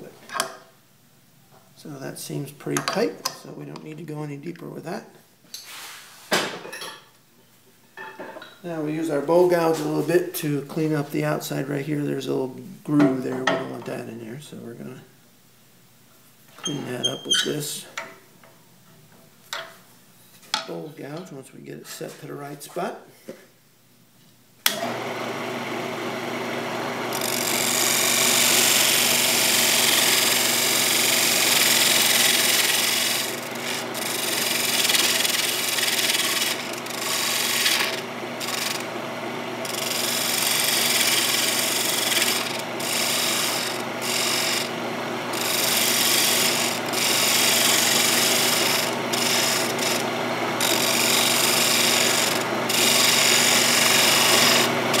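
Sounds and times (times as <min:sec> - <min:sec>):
wood lathe motor hum: 0:24.7 - 0:55.0
gouge cutting wood with hiss: 0:27.1 - 0:38.9, 0:39.6 - 0:55.0.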